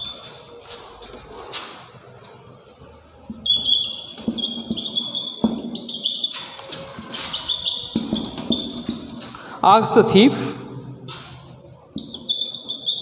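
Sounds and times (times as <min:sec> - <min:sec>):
marker squeaking on whiteboard: 0:00.0 - 0:01.8, 0:03.2 - 0:09.4, 0:11.2 - 0:13.0.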